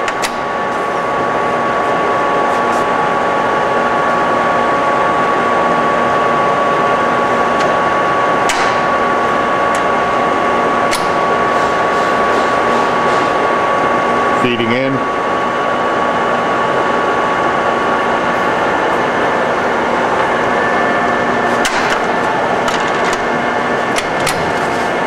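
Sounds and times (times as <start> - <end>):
lathe gear hum and whine: 0.0 - 25.0.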